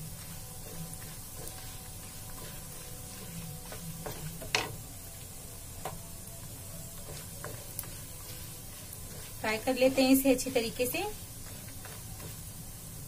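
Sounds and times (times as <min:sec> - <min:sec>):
nuts frying in ghee: 0:00.0 - 0:13.0
wooden spoon knocking a pan: 0:03.7 - 0:04.8.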